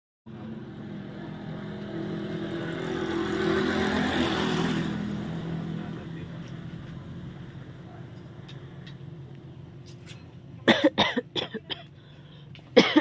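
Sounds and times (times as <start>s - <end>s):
small motorcycle engine running: 0.3s - 7.6s.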